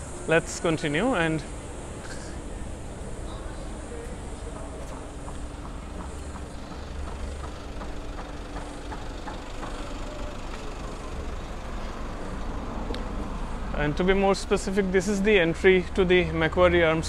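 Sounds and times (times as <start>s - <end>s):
road traffic rumble: 0.0s - 17.0s
footsteps on pavement: 3.9s - 10.9s.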